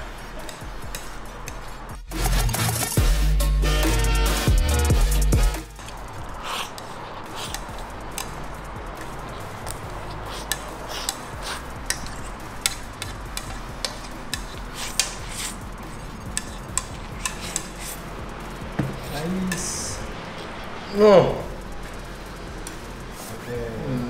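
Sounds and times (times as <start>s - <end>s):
steady low hum: 4.9s - 24.0s
utensils clinking on a plate: 9.0s - 18.0s, 18.8s - 20.7s.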